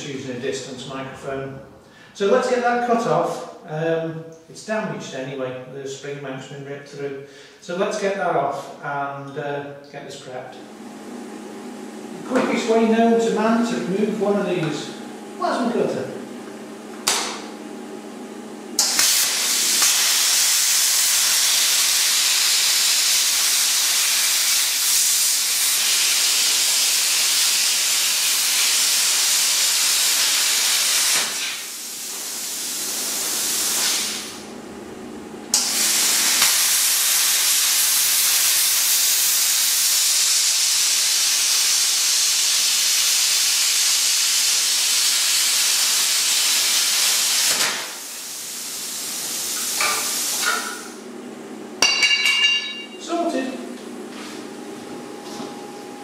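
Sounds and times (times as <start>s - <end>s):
plasma cutter hissing: 18.8s - 34.5s, 35.5s - 51.0s.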